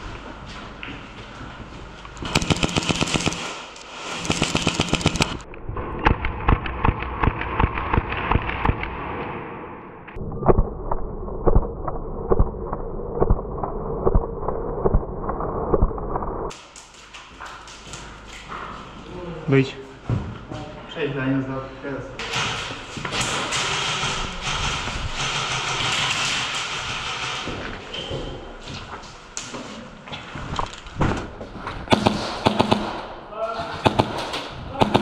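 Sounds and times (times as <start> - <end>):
airsoft guns firing: 2.2 - 5.4, 31.9 - 35.0.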